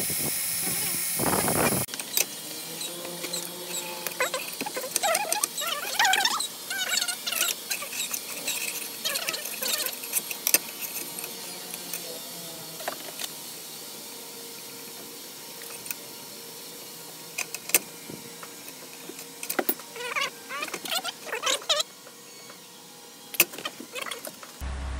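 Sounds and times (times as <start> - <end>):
squeaky plastic scrapes: 1.8 - 11.1.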